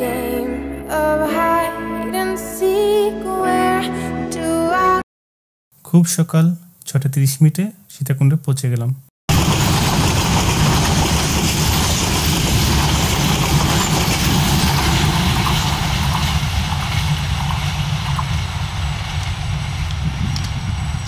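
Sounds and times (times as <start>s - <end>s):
passenger train rumbling: 9.3s - 21.0s.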